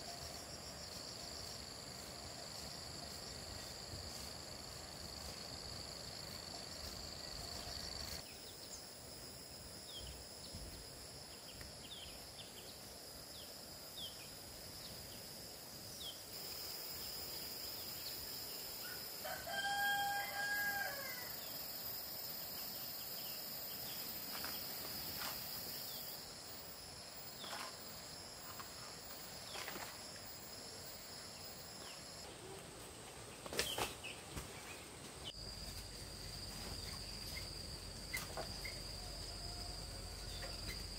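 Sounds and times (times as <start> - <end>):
high insect drone: 0.0 - 32.4, 35.2 - 40.9
rooster crowing: 18.9 - 21.4, 38.9 - 40.6.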